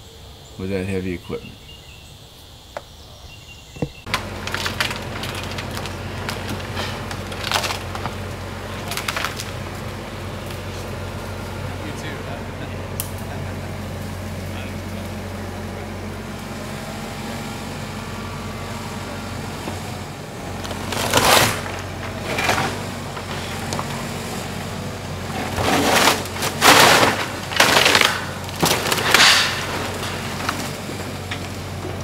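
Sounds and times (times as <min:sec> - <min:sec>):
lumber crashing down: 0:04.1 - 0:10.0, 0:20.5 - 0:24.1, 0:24.8 - 0:32.0
heavy demolition machinery running: 0:04.1 - 0:32.0.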